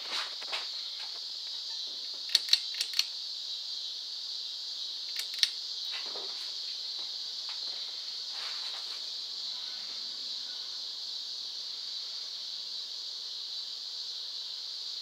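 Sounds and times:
ceiling fan hiss: 0.0 - 15.0
sharp clicks: 2.2 - 3.2, 5.1 - 5.6.

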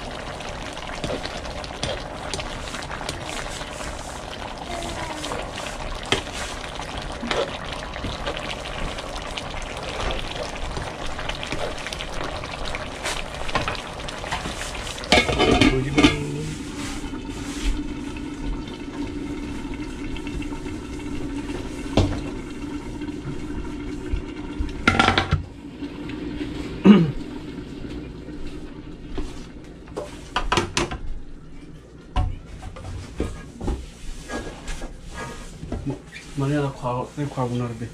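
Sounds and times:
ladle stirring: 0.0 - 18.3
soup bubbling: 0.0 - 25.0
lid clattering: 15.1 - 16.2.

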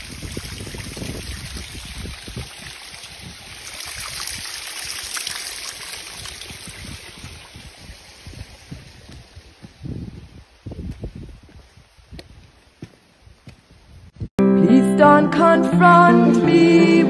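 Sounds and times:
wind on microphone: 0.0 - 5.4, 6.0 - 14.3
water trickling down rock: 0.0 - 9.7.

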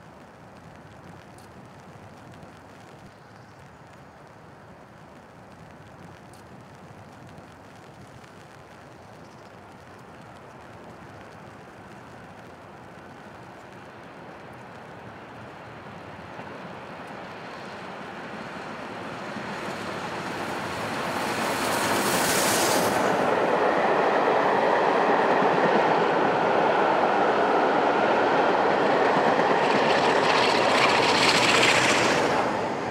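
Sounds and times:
steam locomotive passing: 14.2 - 32.9.

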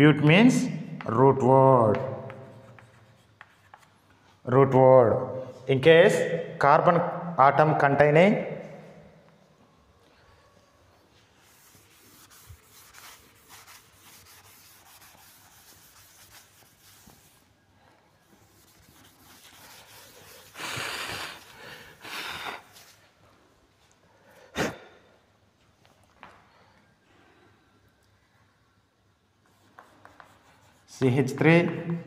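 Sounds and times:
chalk scratching on blackboard: 1.9 - 4.1, 11.4 - 17.5, 18.2 - 21.5, 29.5 - 31.4
cloth wiping blackboard: 11.0 - 17.5, 18.2 - 23.0.

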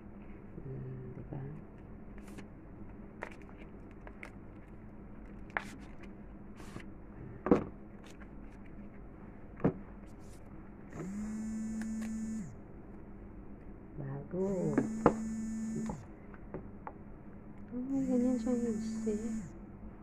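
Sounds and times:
steady buzz: 10.9 - 12.6, 14.3 - 16.1, 17.8 - 19.6.

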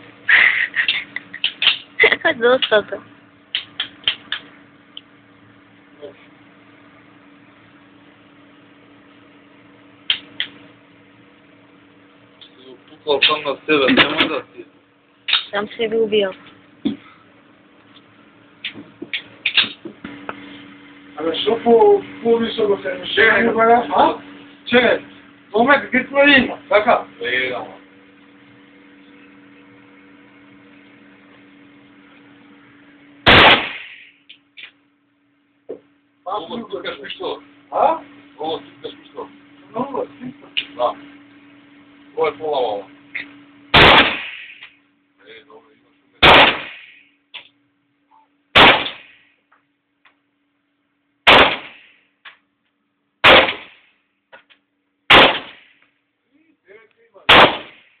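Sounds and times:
low electrical hum: 0.0 - 58.0
pistol shots: 33.2 - 34.0, 43.7 - 44.6, 46.2 - 46.9, 48.6 - 49.2, 51.3 - 51.8, 53.2 - 53.8, 55.1 - 55.7, 57.3 - 57.8.

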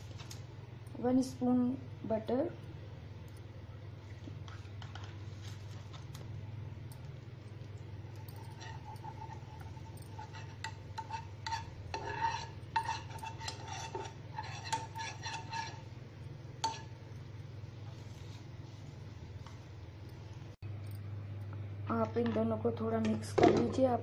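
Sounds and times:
steady low hum: 0.0 - 24.0
metal spoon scraping frying pan: 8.4 - 16.0, 16.6 - 17.0.

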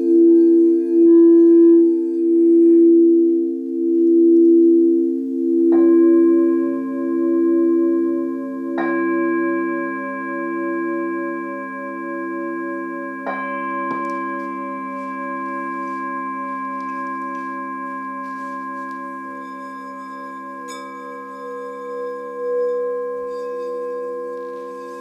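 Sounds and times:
singing bowls ringing: 0.0 - 25.0.

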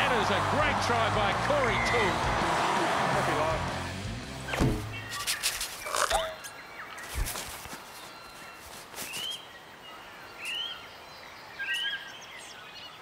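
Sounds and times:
thump: 4.5 - 5.0
bird calling: 4.9 - 9.5.

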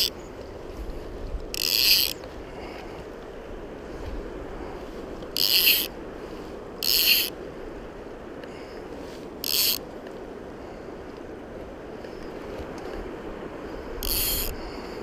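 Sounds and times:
fly reel drag buzzing: 1.5 - 2.2, 5.3 - 6.0, 6.8 - 7.4, 9.4 - 9.8, 14.0 - 14.6.

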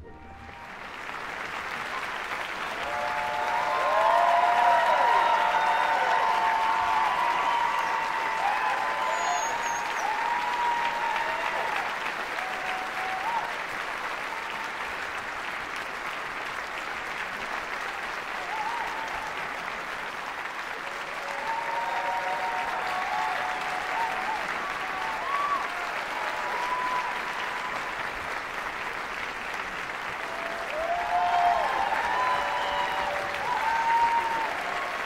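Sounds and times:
audience shouting and cheering: 0.0 - 14.8, 17.8 - 19.6, 20.8 - 28.3, 30.1 - 35.0
audience applauding: 0.0 - 35.0.

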